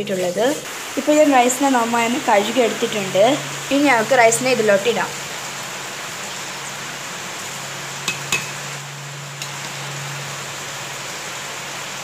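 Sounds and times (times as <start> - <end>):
pot boiling with bubbling hiss: 0.0 - 12.0
metal clinking against pot: 8.0 - 8.6.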